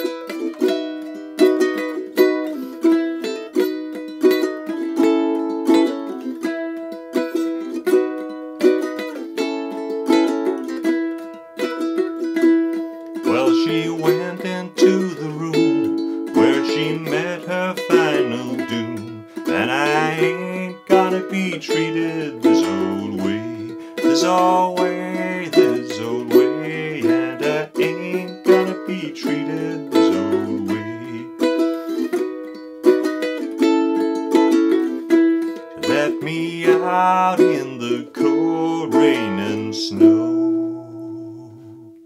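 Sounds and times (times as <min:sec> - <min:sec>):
ukulele picking melody: 0:00.0 - 0:42.0
ukulele strumming chords: 0:00.0 - 0:42.0
person humming: 0:13.3 - 0:32.1, 0:35.8 - 0:42.0.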